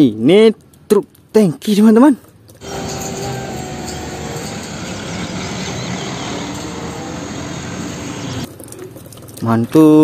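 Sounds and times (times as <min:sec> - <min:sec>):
road noise: 0:02.1 - 0:09.8
truck diesel engine running: 0:02.6 - 0:08.5.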